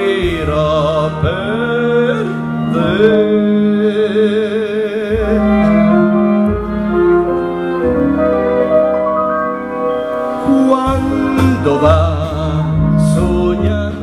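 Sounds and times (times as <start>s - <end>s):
man singing with vibrato: 0.0s - 6.2s, 10.3s - 14.0s
instrumental accompaniment: 0.0s - 14.0s.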